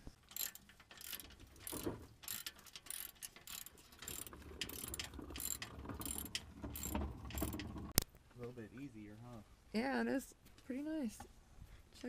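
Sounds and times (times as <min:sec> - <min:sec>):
socket ratchet clicking: 0:00.3 - 0:07.7.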